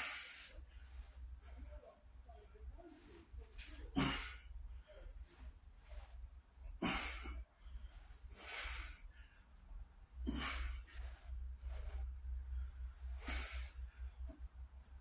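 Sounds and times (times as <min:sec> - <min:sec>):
man breathing hard: 0:06.7 - 0:09.6, 0:10.2 - 0:14.4.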